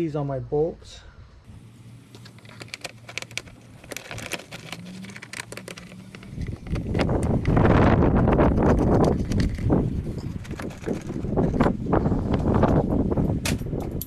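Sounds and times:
hoses and plastic parts clicking: 2.1 - 12.8.

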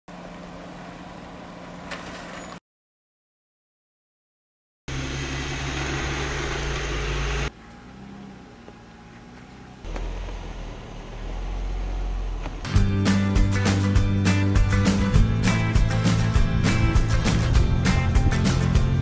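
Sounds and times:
car engine running: 4.9 - 19.0.

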